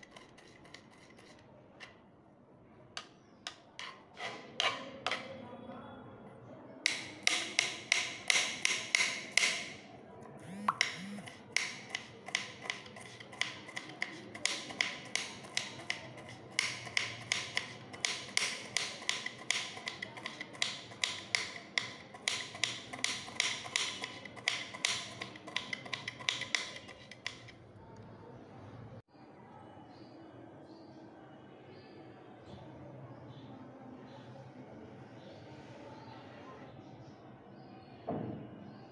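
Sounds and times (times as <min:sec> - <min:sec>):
knife chopping on wooden board: 0:06.9 - 0:09.8, 0:10.4 - 0:27.6.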